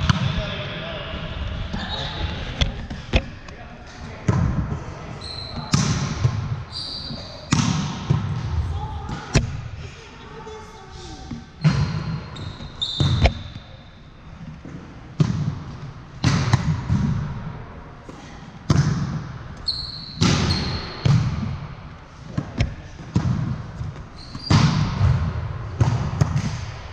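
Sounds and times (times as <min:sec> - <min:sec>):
sneakers squeaking on floor: 0:01.7 - 0:03.2, 0:05.0 - 0:08.5, 0:11.3 - 0:14.0, 0:18.7 - 0:21.6, 0:22.4 - 0:26.6
volleyball being struck: 0:07.5 - 0:08.5.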